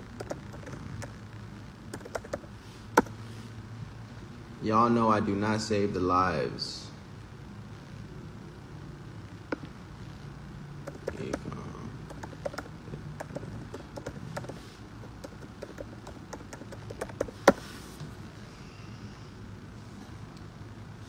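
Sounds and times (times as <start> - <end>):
low steady hum: 0.0 - 21.0
fingers tapping smartphone: 2.0 - 3.1, 10.8 - 11.4, 12.1 - 17.6.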